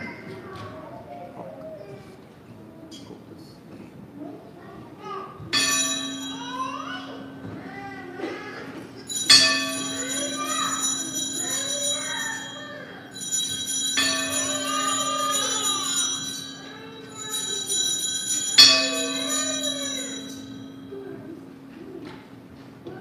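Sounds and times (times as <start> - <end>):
altar bells ringing: 5.5 - 8.0, 9.0 - 21.7.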